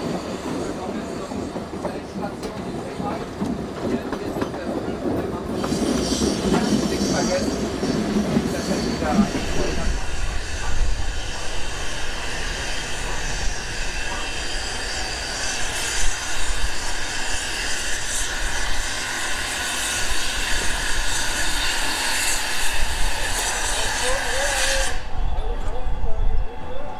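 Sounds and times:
steam hissing: 5.2s - 25.2s.

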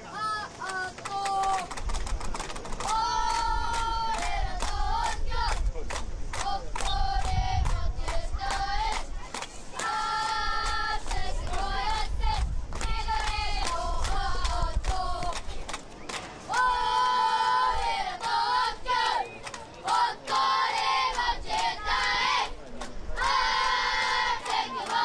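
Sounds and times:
rhythmic claps: 0.6s - 25.0s
crowd chanting in unison: 16.5s - 25.0s.

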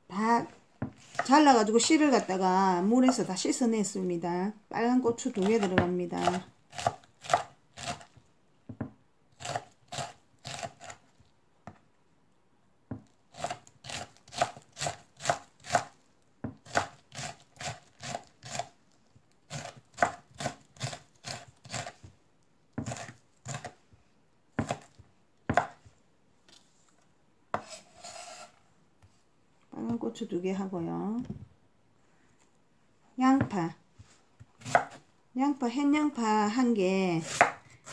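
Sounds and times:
knife chopping on wooden board: 5.3s - 8.1s, 12.9s - 18.7s, 19.5s - 22.0s, 22.8s - 23.8s, 24.6s - 25.8s, 27.5s - 27.8s, 34.6s - 35.0s, 37.2s - 37.9s.

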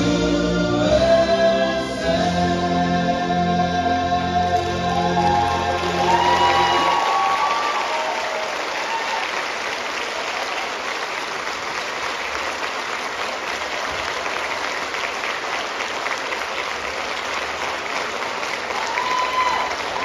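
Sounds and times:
audience applauding: 4.4s - 20.0s.

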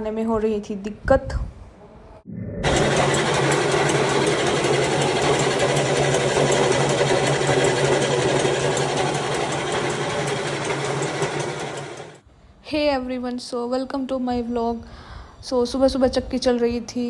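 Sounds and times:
flour mill running: 2.6s - 12.2s.

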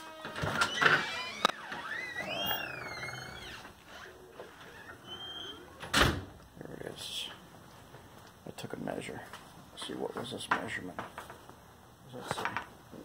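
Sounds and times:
door creaking open: 0.0s - 6.4s.

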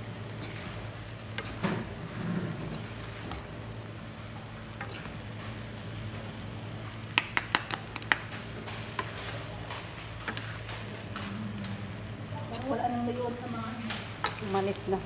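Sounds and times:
wooden spatulas clacking on pan: 7.2s - 8.3s.

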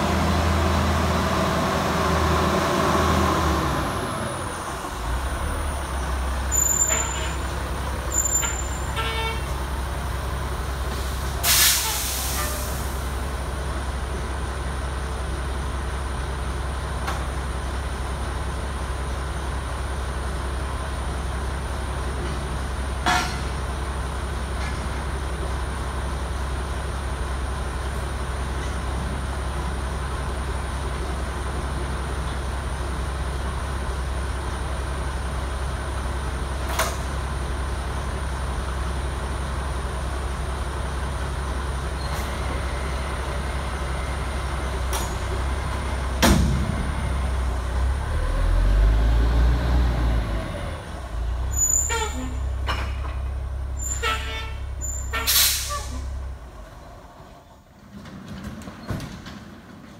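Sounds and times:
heavy truck idling: 0.0s - 58.3s
air hiss: 10.9s - 13.1s, 55.3s - 56.0s.

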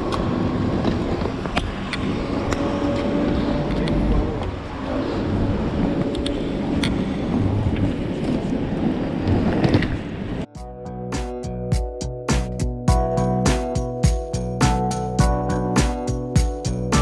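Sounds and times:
traffic rumble: 0.0s - 10.5s
wind on microphone: 0.0s - 10.5s
music: 10.5s - 17.0s.

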